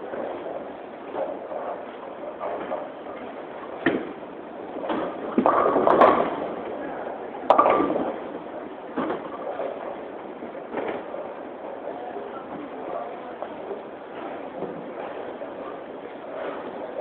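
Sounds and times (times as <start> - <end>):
bowling balls rolling: 0.0 - 17.0
low murmur: 0.0 - 17.0
bowling pins crashing: 4.8 - 6.7, 7.4 - 9.8.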